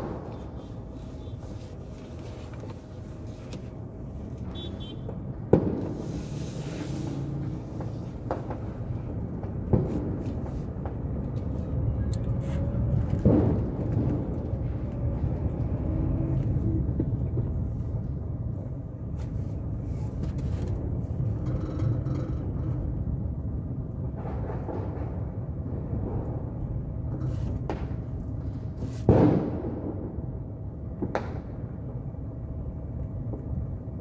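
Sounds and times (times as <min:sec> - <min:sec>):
firecrackers banging: 0:00.0 - 0:02.4, 0:04.4 - 0:11.7, 0:13.2 - 0:15.8, 0:24.0 - 0:31.9
vehicle rumble: 0:00.0 - 0:34.0.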